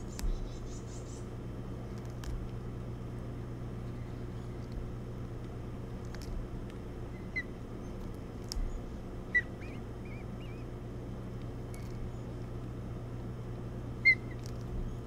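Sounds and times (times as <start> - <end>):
ospreys chirping: 0.0 - 1.3, 6.9 - 12.5, 13.9 - 15.0
steady low hum: 0.0 - 15.0.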